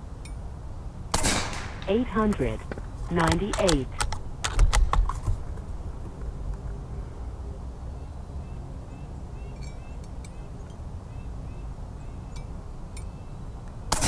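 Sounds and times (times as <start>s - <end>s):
low steady rumble: 0.0s - 14.0s
faint bird chirps: 7.0s - 13.4s.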